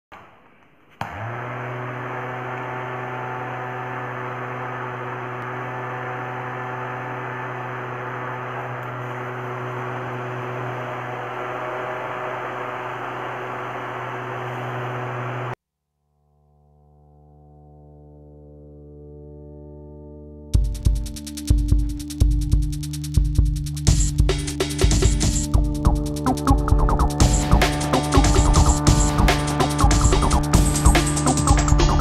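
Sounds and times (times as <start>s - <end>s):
small electric fan motor humming: 1.0s - 15.6s, 24.7s - 32.0s.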